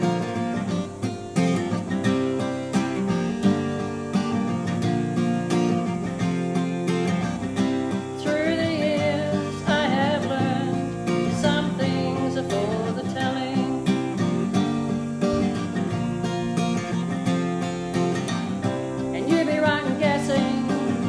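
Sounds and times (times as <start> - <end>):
acoustic guitar strumming: 0.0 - 21.0
woman singing: 7.9 - 14.4, 19.0 - 21.0.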